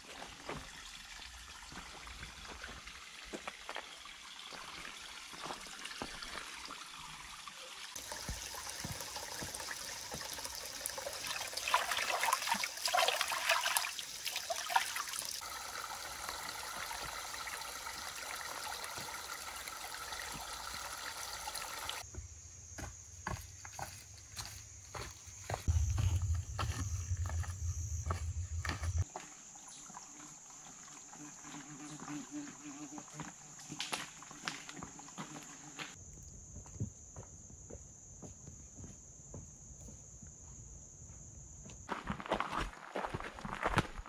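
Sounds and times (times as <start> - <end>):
water trickling over rock: 0.0 - 22.0
footsteps on dirt trail: 8.1 - 10.4, 22.0 - 29.3, 41.8 - 44.0.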